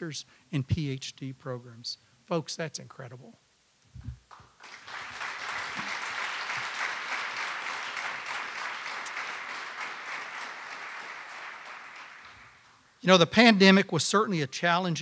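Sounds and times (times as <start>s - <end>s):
audience applauding: 4.3s - 12.8s.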